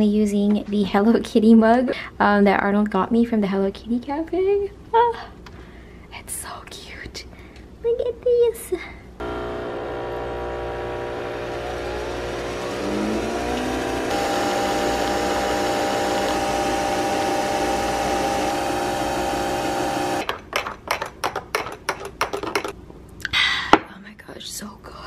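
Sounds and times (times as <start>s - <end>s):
coffee machine motor humming: 9.2s - 20.2s
rising whine: 9.2s - 20.2s.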